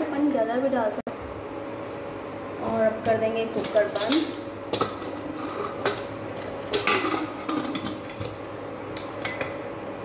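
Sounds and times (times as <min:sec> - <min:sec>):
steady hum: 0:00.0 - 0:10.0
metal lid clinking and scraping: 0:04.0 - 0:08.4.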